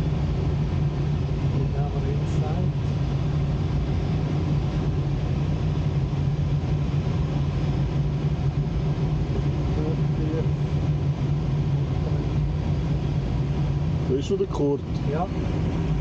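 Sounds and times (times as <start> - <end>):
constant low hum: 0.0 - 16.0.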